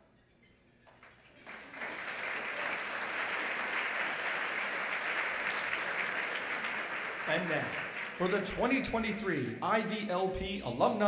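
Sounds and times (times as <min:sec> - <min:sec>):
audience applause: 0:01.1 - 0:08.8.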